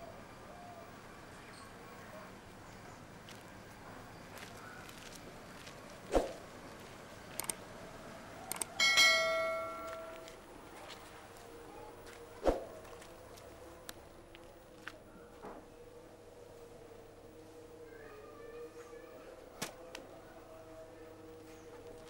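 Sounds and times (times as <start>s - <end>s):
light clicks: 7.3s - 7.6s
small metal bell ringing: 8.8s - 10.2s.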